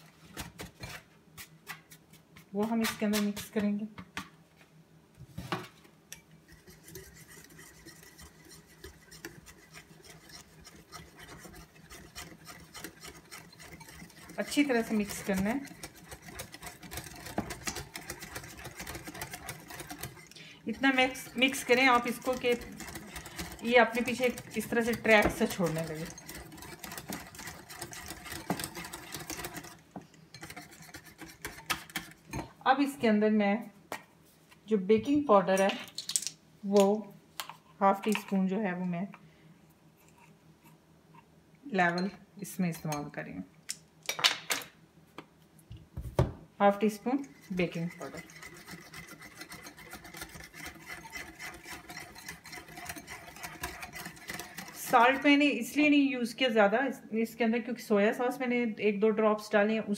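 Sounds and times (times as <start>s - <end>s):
whisk scraping bowl: 6.4s - 32.5s, 46.6s - 56.7s
whisk knock on bowl: 20.8s - 29.6s.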